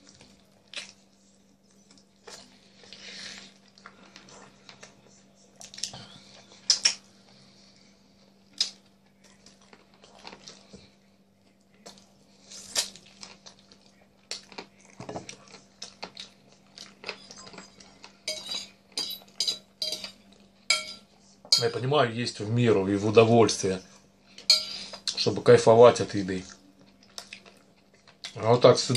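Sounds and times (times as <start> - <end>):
man chewing and mouth smacks: 0.0 - 5.0, 5.6 - 7.1, 8.4 - 10.8, 11.4 - 18.2, 26.5 - 28.4
metal fork clinking on plate: 18.3 - 21.8, 24.4 - 24.9.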